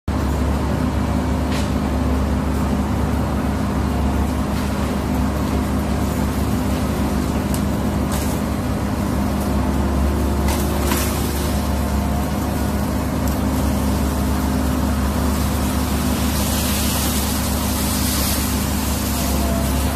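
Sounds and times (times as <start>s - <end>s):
excavator diesel engine running: 0.1s - 19.9s
branches crackling: 4.2s - 19.9s.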